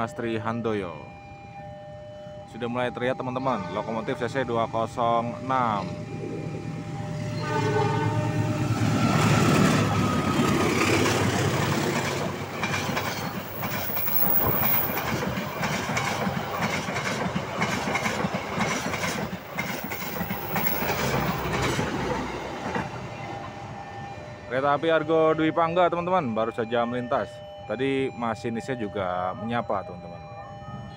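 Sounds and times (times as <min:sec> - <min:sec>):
locomotive horn: 0:03.4 - 0:04.6, 0:07.0 - 0:10.5
train coaches rushing past: 0:03.9 - 0:25.4
wheels clattering over rail joints: 0:08.7 - 0:23.0.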